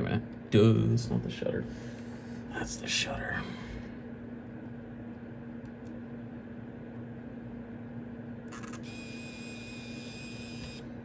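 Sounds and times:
camera mechanism noise: 8.5s - 10.8s
high-pitched whine: 8.5s - 10.8s.

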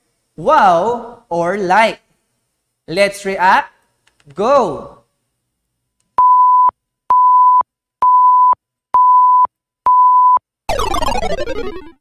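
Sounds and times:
falling cascade of electronic tones: 10.7s - 12.0s.

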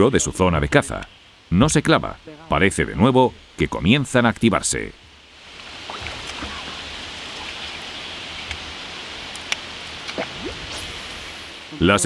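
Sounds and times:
breeze: 0.0s - 12.0s
river water flowing: 4.7s - 12.0s
faint clicks: 9.3s - 10.2s.

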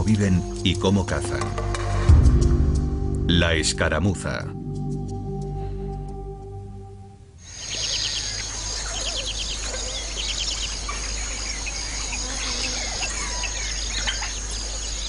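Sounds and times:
birds chirping and trilling: 7.4s - 15.0s
high-pitched insect drone: 7.4s - 15.0s.

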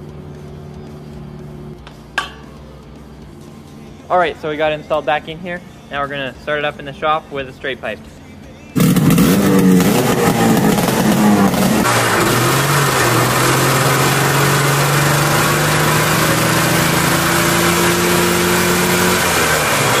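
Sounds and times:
loud snowmobile engine running: 8.8s - 20.0s.

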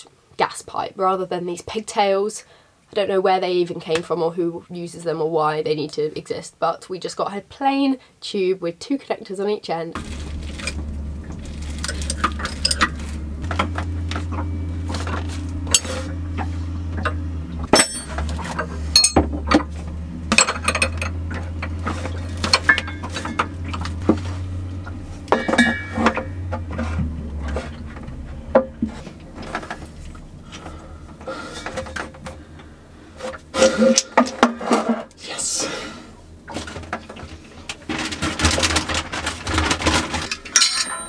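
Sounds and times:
steady low hum: 10.0s - 38.3s
metallic clinks of spanner and fittings: 19.0s - 19.2s, 40.3s - 41.0s.

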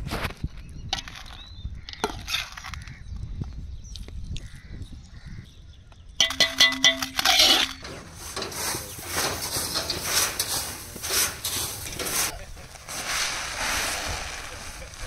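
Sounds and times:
ladle scraping a metal pot: 6.2s - 12.3s
grain shovelled with metal scoops: 6.2s - 15.0s.

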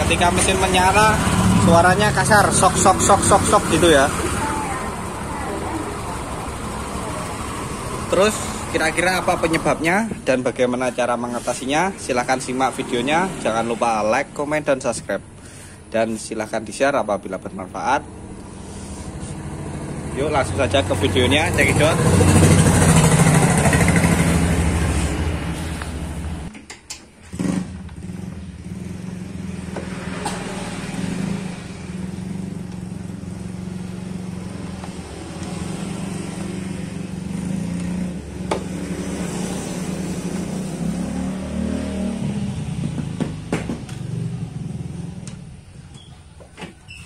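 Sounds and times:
scooter engine running rough: 0.0s - 9.8s, 19.2s - 26.3s.

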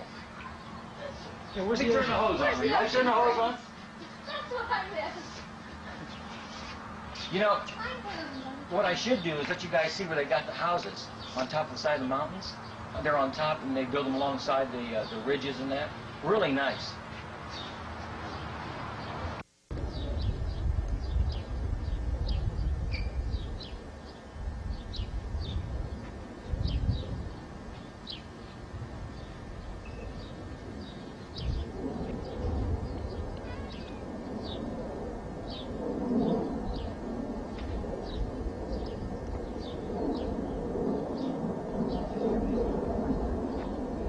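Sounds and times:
birds chirping: 0.0s - 44.0s
low uneven rumble: 0.0s - 44.0s.

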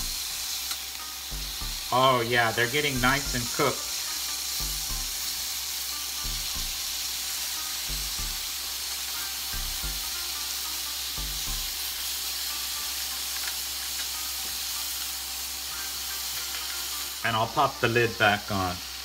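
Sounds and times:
grill fan running: 0.0s - 19.0s
meat sizzling on grill: 0.0s - 19.0s
soft low thumps: 1.3s - 1.9s, 4.6s - 5.2s, 6.2s - 6.9s, 7.9s - 8.5s, 11.2s - 11.8s.

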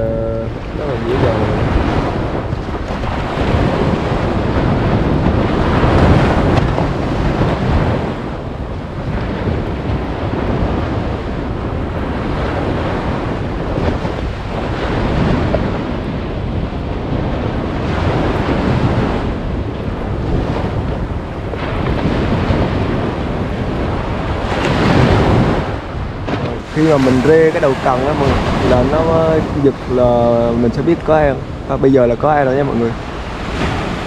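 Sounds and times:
surf washing onto beach: 0.0s - 34.0s
wind buffeting microphone: 0.0s - 34.0s.

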